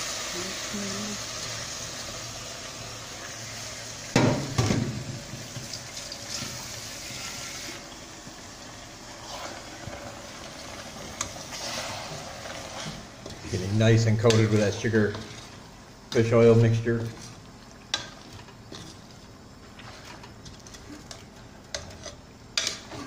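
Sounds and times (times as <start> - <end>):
tap water running into pot: 1.2 - 12.6.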